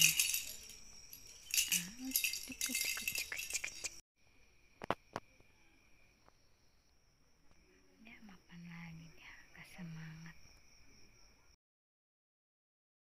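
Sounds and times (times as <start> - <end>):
cat toy ball bell jingling: 0.0 - 4.0.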